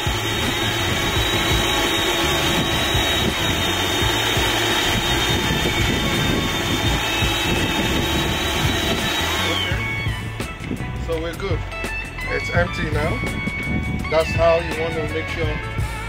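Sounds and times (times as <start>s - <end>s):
spark machine whooshing and whining: 0.0s - 10.4s.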